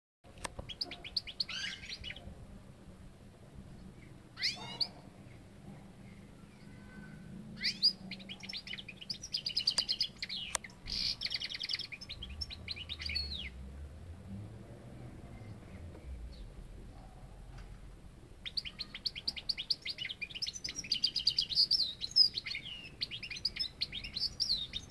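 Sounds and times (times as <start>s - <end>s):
goldfinch twittering and trilling: 0.7s - 2.2s, 7.6s - 13.6s, 18.4s - 24.9s.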